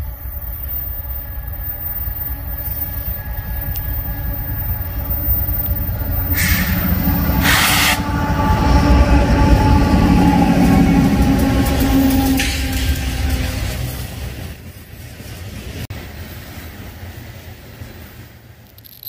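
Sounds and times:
freight train rumble: 0:00.0 - 0:19.0
short bursts of hiss: 0:07.4 - 0:08.0.

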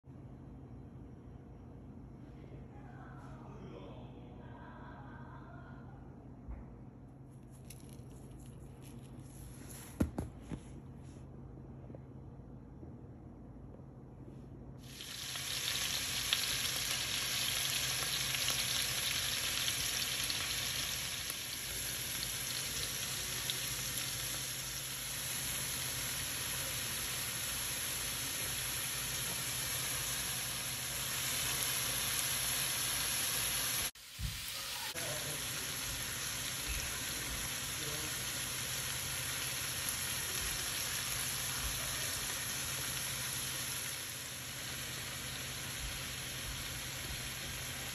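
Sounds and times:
fish and onions sizzling in oil: 0:14.8 - 0:47.9.

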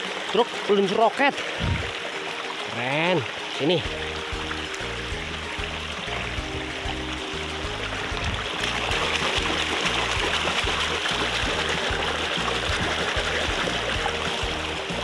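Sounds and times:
stream water rushing and splashing: 0:00.0 - 0:15.0
background music with steady beat: 0:03.3 - 0:15.0.

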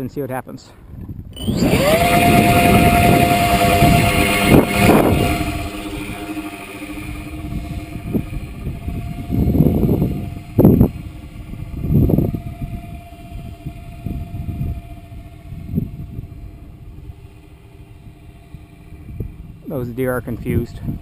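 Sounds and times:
wind noise on microphone: 0:00.8 - 0:21.0
model airplane motor whine: 0:01.0 - 0:21.0.

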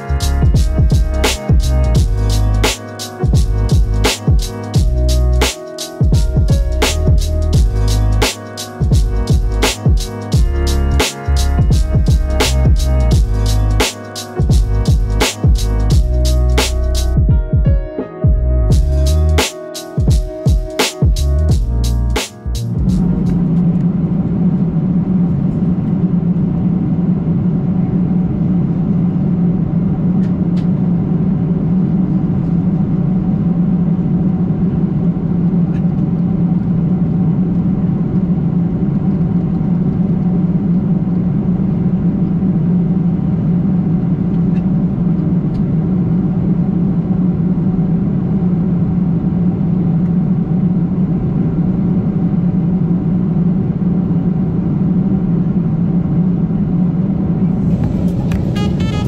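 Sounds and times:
airliner cabin drone: 0:00.0 - 0:17.4, 0:18.5 - 0:59.0.

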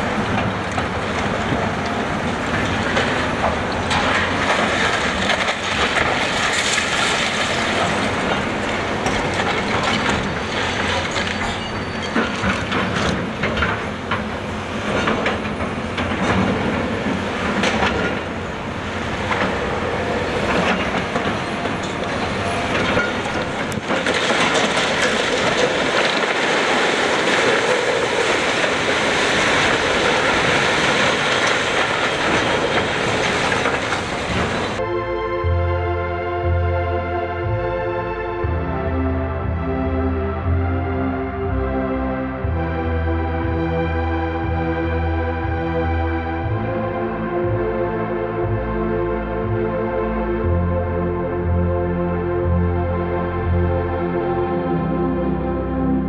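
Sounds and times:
building crashing down: 0:00.0 - 0:34.8
excavator engine and hydraulics: 0:00.0 - 0:56.0
falling debris: 0:02.4 - 0:14.3, 0:19.2 - 0:34.8
steel screeching and clanking: 0:09.2 - 0:13.5.

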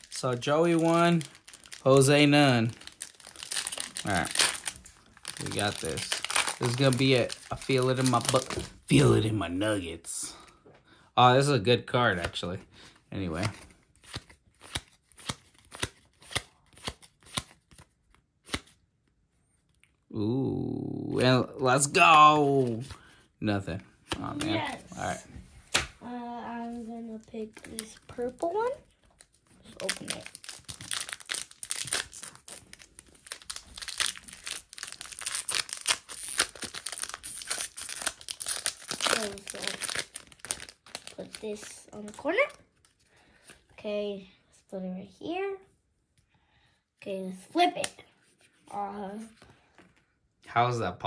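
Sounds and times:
foil wrapper tearing and crinkling: 0:00.0 - 0:08.7, 0:29.2 - 0:42.2.

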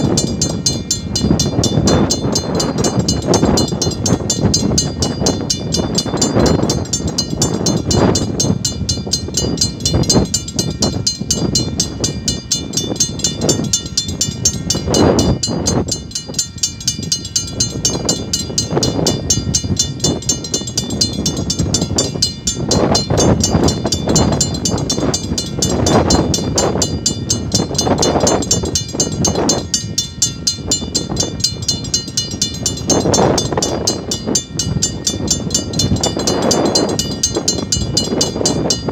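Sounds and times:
level-crossing warning bell ringing: 0:00.0 - 0:38.9.

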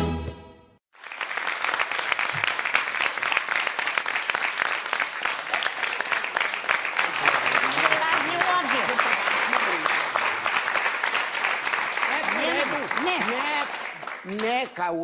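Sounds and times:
audience applauding: 0:00.9 - 0:15.0.

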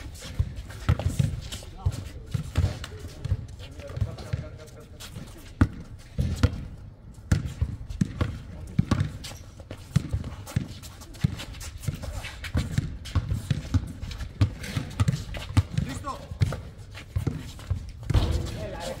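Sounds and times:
basketball bouncing on hard court: 0:00.3 - 0:01.5, 0:05.6 - 0:06.7, 0:07.3 - 0:09.2, 0:09.8 - 0:18.8.

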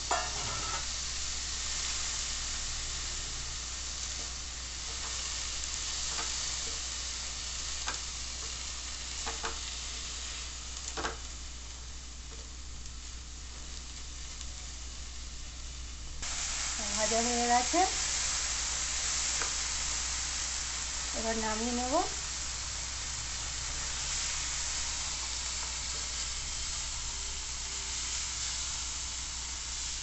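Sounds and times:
vegetables sizzling in a frying pan: 0:00.0 - 0:30.0
spatula scraping a pan: 0:00.1 - 0:00.9.

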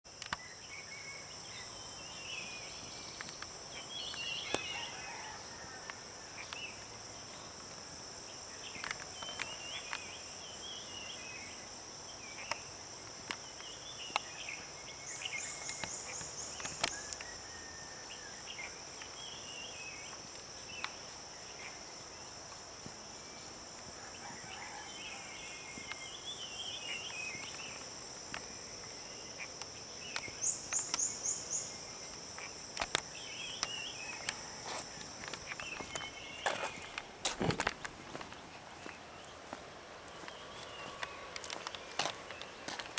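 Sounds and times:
high-pitched insect chorus: 0:00.0 - 0:42.9
birds chirping: 0:23.2 - 0:42.9.

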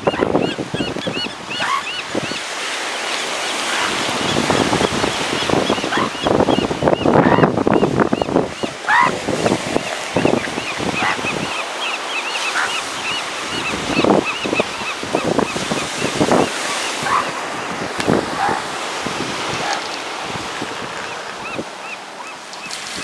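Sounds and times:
surf washing: 0:00.0 - 0:23.0
elephant seals honking: 0:01.5 - 0:02.0, 0:03.5 - 0:06.3, 0:08.7 - 0:09.2, 0:10.6 - 0:15.2, 0:16.5 - 0:17.4, 0:18.2 - 0:18.8.

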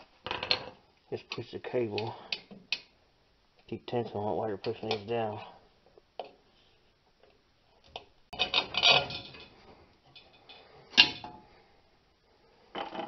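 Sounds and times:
metal tool clinking and rattling: 0:08.3 - 0:11.4.

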